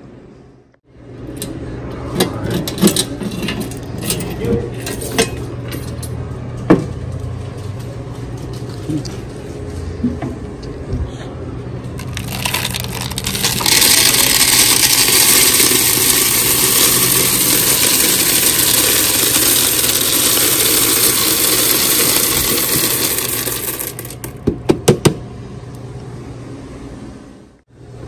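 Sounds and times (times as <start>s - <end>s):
candies rattling into machine: 12.0s - 24.3s.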